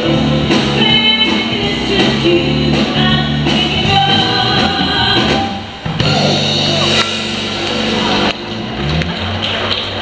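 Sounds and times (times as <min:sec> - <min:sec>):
woman singing: 0:00.0 - 0:05.6.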